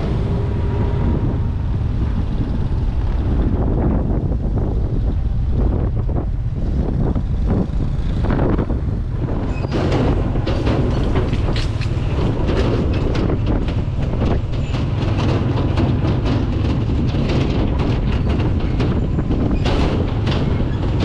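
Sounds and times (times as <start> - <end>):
vehicle low rumble: 0.0 - 21.0
rapid rattling clicks: 9.2 - 21.0.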